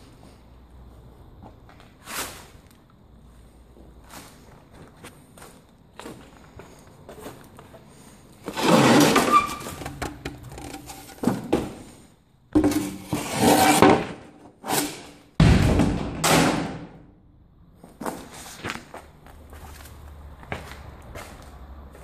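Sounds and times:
footsteps on debris and boards: 0:03.7 - 0:14.2, 0:17.8 - 0:22.0.

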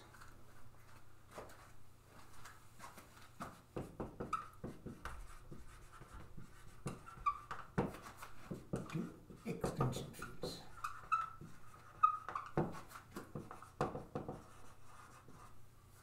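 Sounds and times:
marker writing on whiteboard: 0:02.8 - 0:16.0
marker squeaks: 0:04.3 - 0:04.6, 0:06.8 - 0:08.3, 0:10.2 - 0:13.6.

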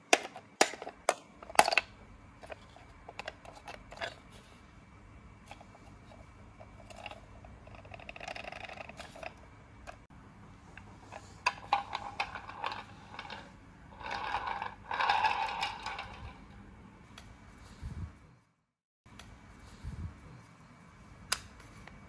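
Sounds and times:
ball bearings rolling on tile: 0:05.5 - 0:10.0, 0:10.7 - 0:16.8.

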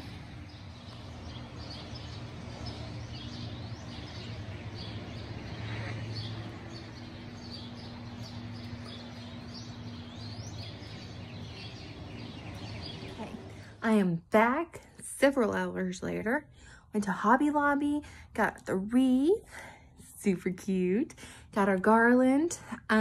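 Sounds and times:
songbirds chirping and singing: 0:00.0 - 0:14.0
low steady hum: 0:00.0 - 0:23.0.

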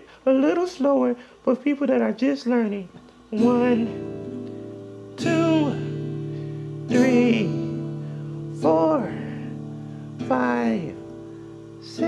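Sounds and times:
person singing numbers: 0:01.7 - 0:04.4
strummed acoustic guitar chords: 0:03.0 - 0:12.0.

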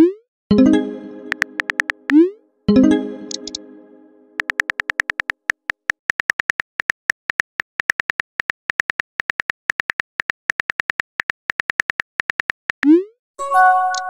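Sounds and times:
phone keyboard clicks: 0:01.3 - 0:02.2, 0:04.4 - 0:12.9.

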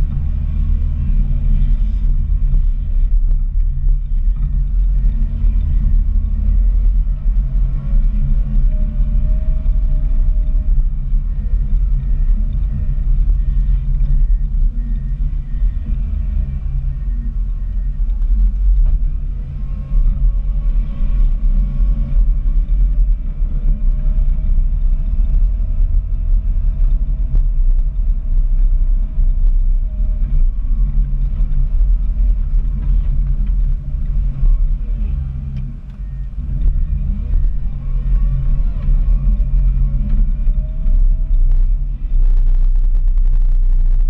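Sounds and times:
faint whine rising in pitch: 0:00.0 - 0:44.0
loader engine rumble: 0:00.0 - 0:44.0.

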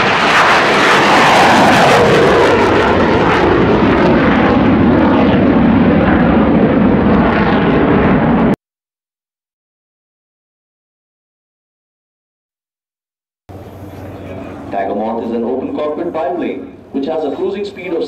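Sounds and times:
aircraft flying past: 0:00.0 - 0:08.6, 0:13.5 - 0:18.0.

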